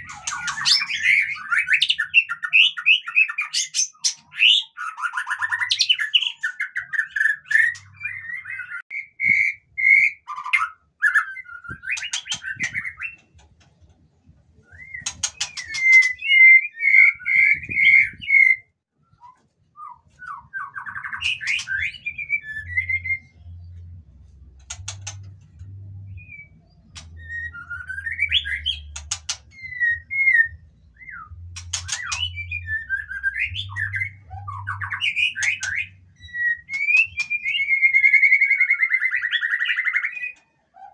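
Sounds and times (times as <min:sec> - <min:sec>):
harsh rattling bird notes: 0:00.0 - 0:01.4, 0:15.0 - 0:16.2, 0:31.6 - 0:32.5
bird singing whistled phrases: 0:26.2 - 0:40.4.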